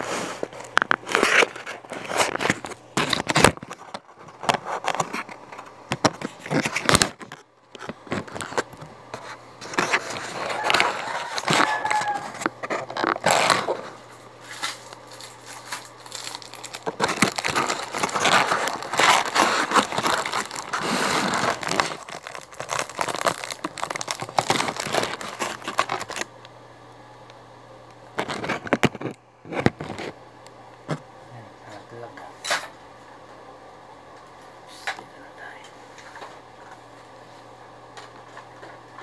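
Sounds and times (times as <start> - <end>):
plastic wrapping crinkling: 0.4 - 26.3, 28.2 - 30.2.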